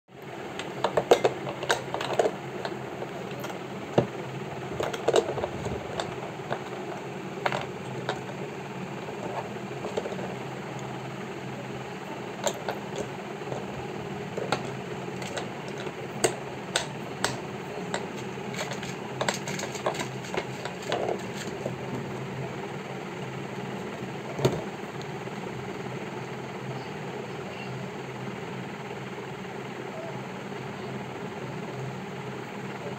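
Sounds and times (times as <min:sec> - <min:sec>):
steady mechanical hum: 0:00.1 - 0:32.9.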